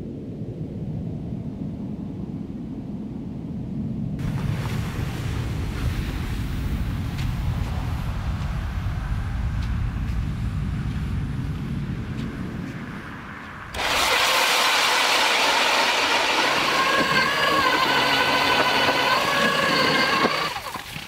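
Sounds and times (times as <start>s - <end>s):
wind rumbling on microphone: 0.0s - 21.0s
power ice auger boring ice: 13.8s - 21.0s.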